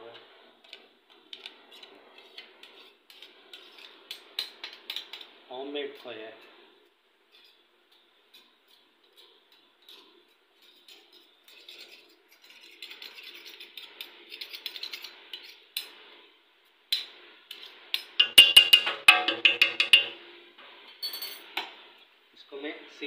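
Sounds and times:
metal spoon scraping pot: 0:00.7 - 0:05.3, 0:08.3 - 0:15.9, 0:17.5 - 0:20.2
metal clinks against pot: 0:18.2 - 0:20.2.

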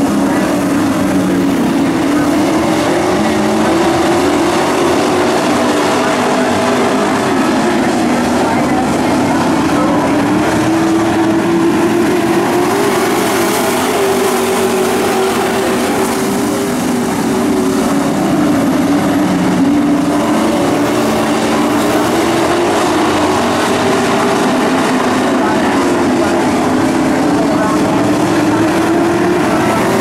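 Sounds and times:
racing truck engines: 0:00.0 - 0:30.0.

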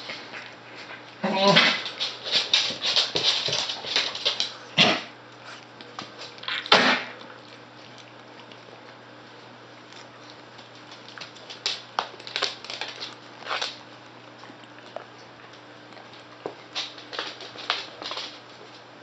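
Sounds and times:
puppy claws tapping on wood floor: 0:01.8 - 0:04.6, 0:10.6 - 0:13.8, 0:16.0 - 0:18.4.

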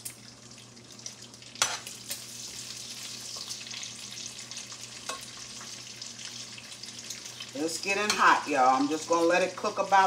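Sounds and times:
bacon sizzling in a pan: 0:00.0 - 0:10.0.

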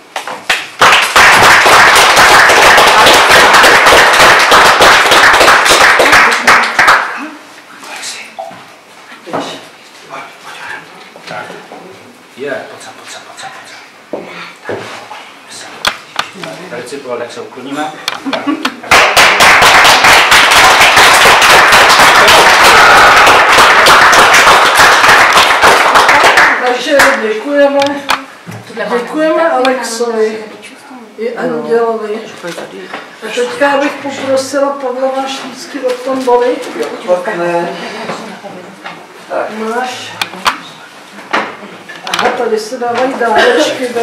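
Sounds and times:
audience applauding: 0:00.4 - 0:07.3, 0:18.8 - 0:27.2.

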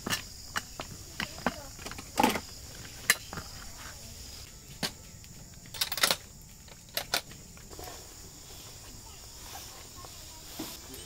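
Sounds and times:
tent poles clacking: 0:00.0 - 0:08.1.

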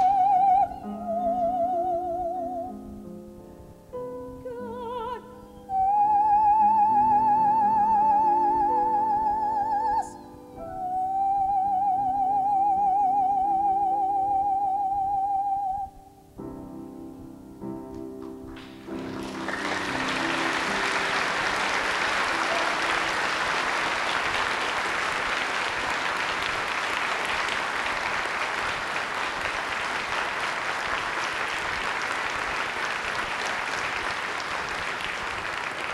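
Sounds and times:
piano chord: 0:16.2 - 0:23.9
audience applauding: 0:18.5 - 0:35.9.

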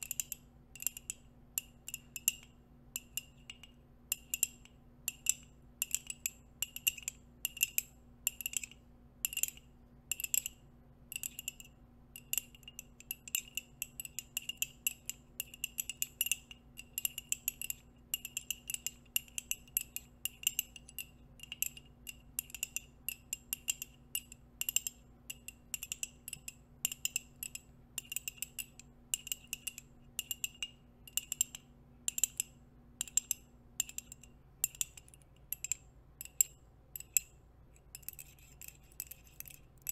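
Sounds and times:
nail rings tapping on a mug: 0:00.0 - 0:39.9.

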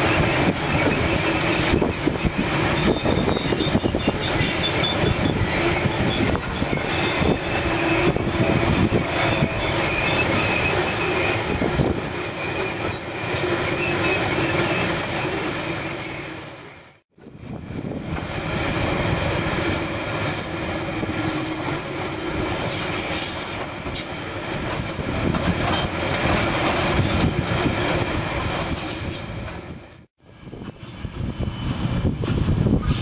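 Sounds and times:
drawn-out wheel squeal: 0:00.0 - 0:11.7, 0:12.4 - 0:16.7
train wheels rumbling and clicking: 0:00.0 - 0:15.3, 0:17.2 - 0:33.0.

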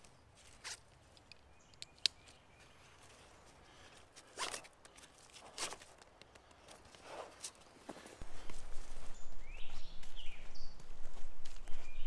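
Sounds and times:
strap sliding through buckle: 0:04.2 - 0:05.9.

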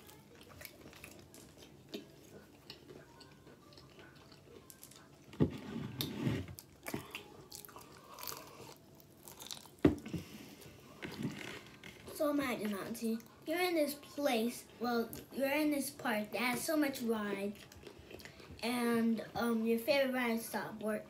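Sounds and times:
soft chewing with clicks: 0:00.0 - 0:05.4, 0:06.6 - 0:09.8, 0:17.5 - 0:18.6.

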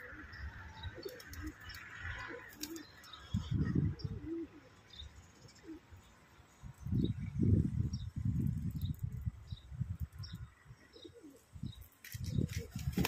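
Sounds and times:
pigeons cooing: 0:00.0 - 0:06.0, 0:10.8 - 0:11.7.

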